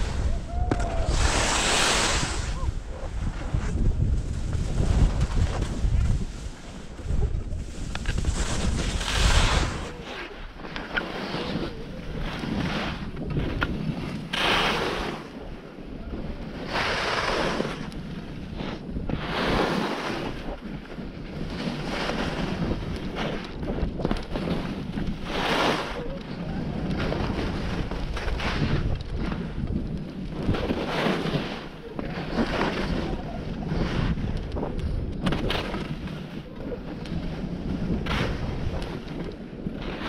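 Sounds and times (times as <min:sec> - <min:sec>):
skis scraping across snow: 0:00.0 - 0:40.0
wind buffeting microphone: 0:00.0 - 0:40.0.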